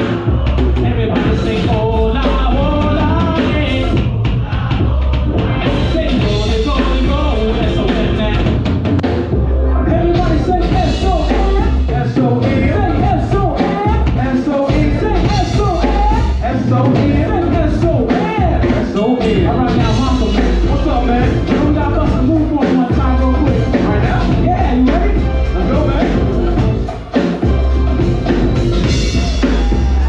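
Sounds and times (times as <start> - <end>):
drum kit: 0.0 - 30.0
heavy bass groove: 0.0 - 30.0
live band music: 0.0 - 30.0
wavering lead melody: 9.2 - 12.0, 17.2 - 30.0.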